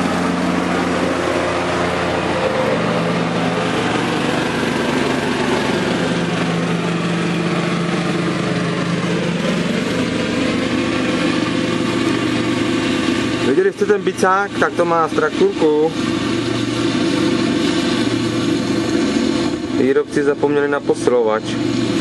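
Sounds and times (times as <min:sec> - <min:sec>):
lawn tractor engine running: 0:00.0 - 0:22.0.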